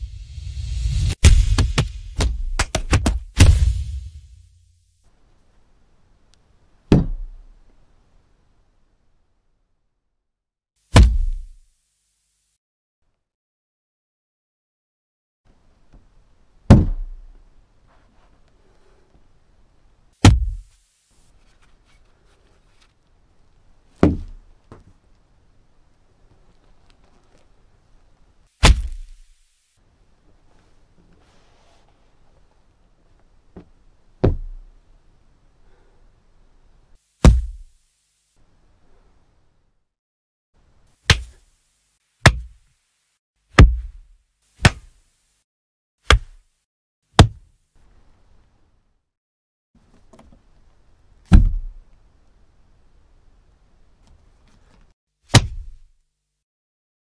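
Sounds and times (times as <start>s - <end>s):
hard crack hit impacts: 1.0s - 4.4s, 10.9s - 11.5s, 20.2s - 20.7s, 28.6s - 29.3s, 37.2s - 37.7s, 41.1s - 41.4s, 42.2s - 42.6s, 44.6s - 44.9s, 55.3s - 55.8s
wooden club striking padded block: 1.2s - 3.7s, 6.9s - 7.5s, 10.9s - 11.5s, 16.7s - 17.3s, 20.2s - 20.7s, 24.0s - 24.9s, 28.6s - 29.3s, 33.6s - 34.7s, 37.2s - 37.7s, 41.1s - 41.4s, 42.2s - 42.6s, 43.6s - 45.0s, 46.1s - 46.4s, 47.2s - 47.4s, 51.3s - 51.7s, 55.3s - 55.8s.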